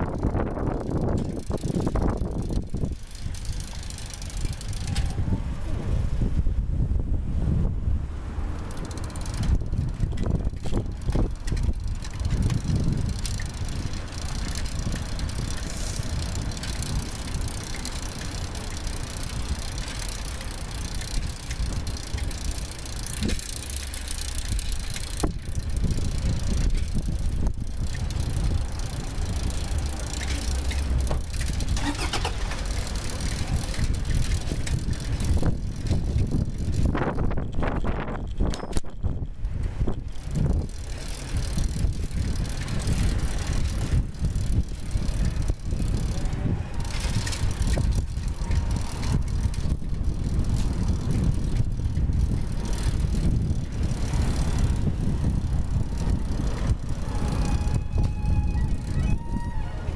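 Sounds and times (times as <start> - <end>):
bicycle riding rumble: 0.0 - 59.9.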